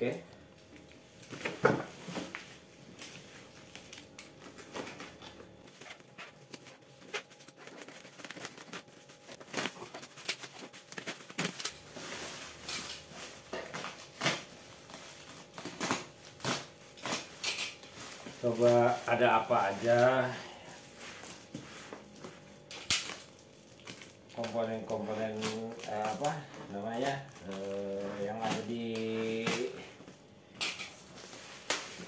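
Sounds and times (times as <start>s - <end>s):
bubble wrap tearing and crinkling: 0.8s - 32.0s
utility knife cutting wrapping: 15.2s - 17.8s, 24.0s - 29.8s.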